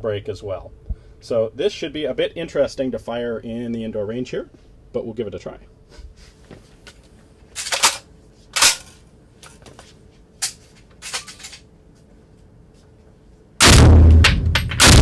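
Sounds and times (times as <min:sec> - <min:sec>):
rifle shot: 0:13.6 - 0:15.0.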